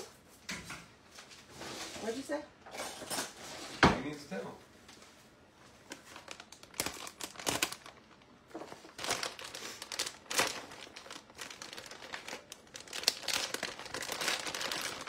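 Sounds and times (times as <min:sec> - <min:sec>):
plastic bag crinkling: 0:05.8 - 0:15.0.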